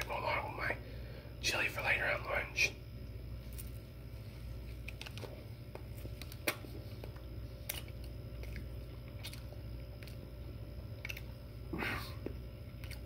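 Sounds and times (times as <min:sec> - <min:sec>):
low steady hum: 0:00.0 - 0:13.0
person chewing food: 0:04.6 - 0:13.0
wet mouth clicks and smacks: 0:10.9 - 0:11.4.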